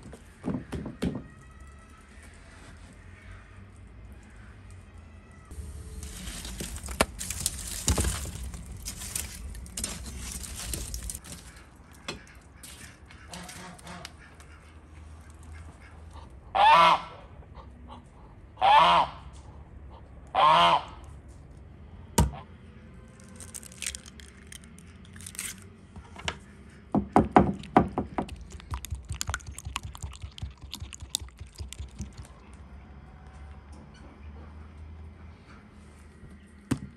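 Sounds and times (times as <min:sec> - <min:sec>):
goose honking: 0:12.2 - 0:14.8, 0:16.6 - 0:17.3, 0:18.6 - 0:19.3, 0:20.3 - 0:21.0
eggs beaten in wooden bowl: 0:27.3 - 0:32.3.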